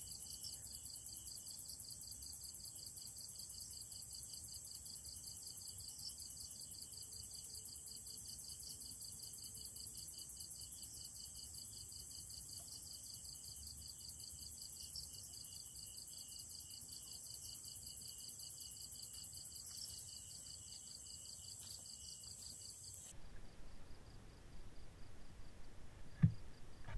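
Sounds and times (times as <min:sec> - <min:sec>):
crickets trilling: 0:11.0 - 0:23.1.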